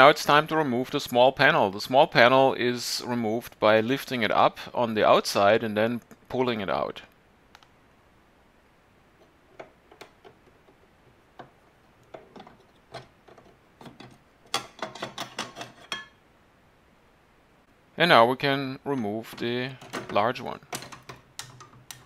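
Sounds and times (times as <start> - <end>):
metal panel clicking and scraping: 11.4 - 16.1.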